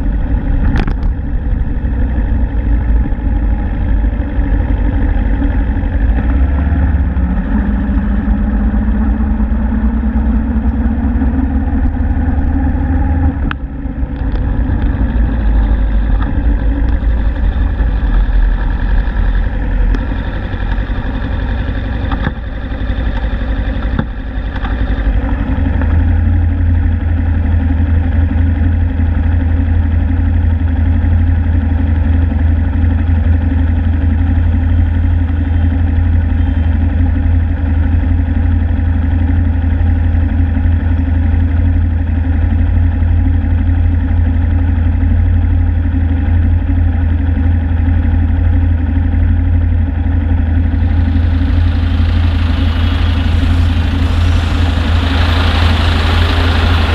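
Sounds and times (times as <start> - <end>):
motorcycle engine idling: 0.0 - 56.9.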